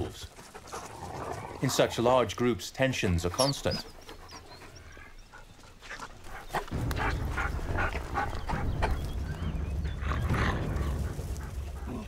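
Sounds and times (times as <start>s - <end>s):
wolves yelping and whining: 3.2s - 12.0s
low rumble: 6.7s - 12.0s.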